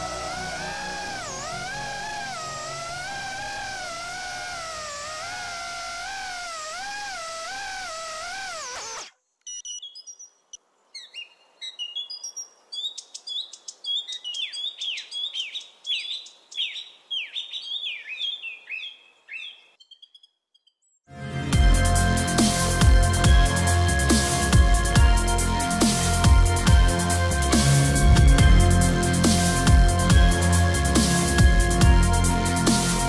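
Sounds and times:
wavering electronic tone: 0.0s - 9.1s
birdsong chirps: 0.0s - 21.1s.

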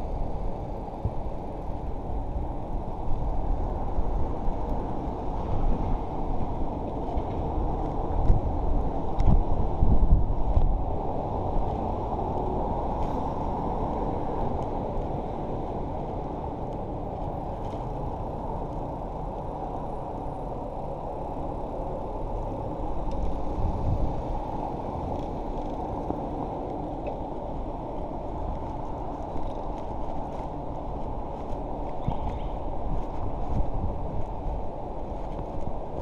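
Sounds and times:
bicycle rolling noise: 0.0s - 36.0s.

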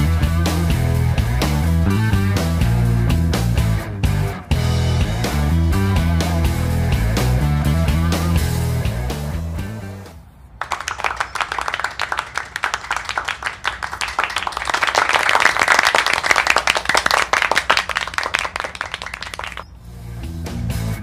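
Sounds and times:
background music: 0.0s - 10.2s
hands clapping in applause: 10.6s - 19.7s.

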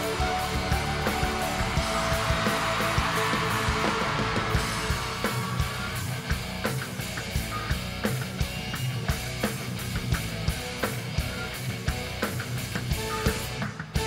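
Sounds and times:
crowd cheering: 0.0s - 8.2s
drum kit beat: 0.0s - 14.0s
electric guitars: 0.0s - 14.0s.

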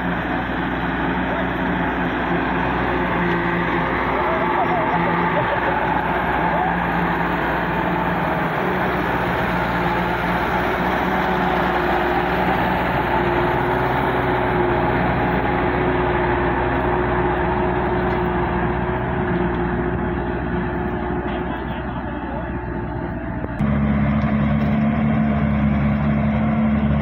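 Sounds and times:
diesel truck engine under load: 0.0s - 27.0s.

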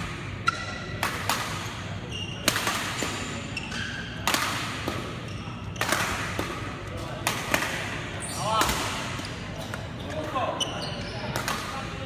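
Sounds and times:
rackets hitting shuttlecock: 0.0s - 9.9s, 11.3s - 12.0s
shoes squeaking on floor: 2.0s - 2.4s, 3.3s - 4.2s, 5.2s - 5.8s, 9.2s - 11.4s.

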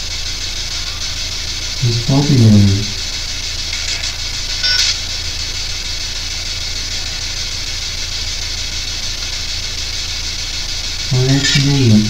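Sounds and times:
low electrical hum: 0.0s - 12.0s
static hiss: 0.0s - 12.0s.

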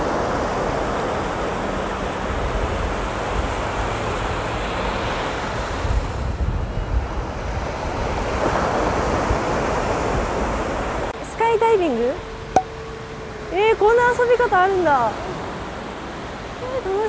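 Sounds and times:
waves breaking on beach: 0.0s - 11.8s, 12.6s - 17.0s
wind buffeting microphone: 5.5s - 11.2s.

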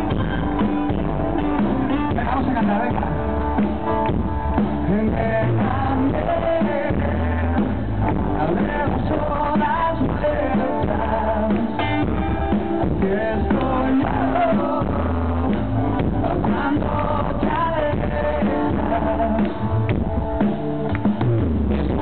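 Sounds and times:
bass guitar: 0.0s - 22.0s
drum kit: 0.0s - 22.0s
electric guitar: 0.0s - 22.0s
man singing into a microphone: 1.8s - 3.6s, 4.8s - 19.8s.

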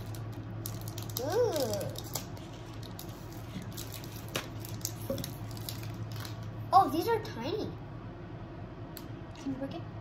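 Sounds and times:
plastic wrappers crinkling and tearing: 0.0s - 6.6s
steady low hum: 0.0s - 10.0s.

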